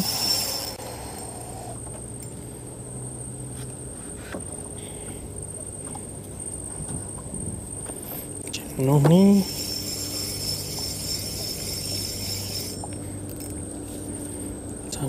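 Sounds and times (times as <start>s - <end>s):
insect trill: 0.0s - 1.8s, 6.4s - 13.5s
riverside ambience: 0.0s - 15.0s.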